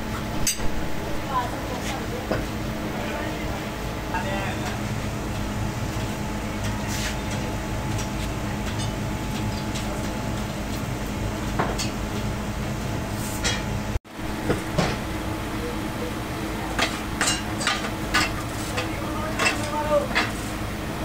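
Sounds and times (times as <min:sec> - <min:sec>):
low machinery hum: 0:00.0 - 0:21.0.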